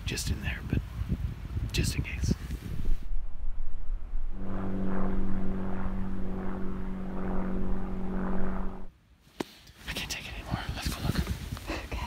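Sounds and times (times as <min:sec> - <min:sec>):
wind rumbling on microphone: 0:00.2 - 0:08.9, 0:10.4 - 0:11.7
steady engine drone: 0:02.9 - 0:08.9.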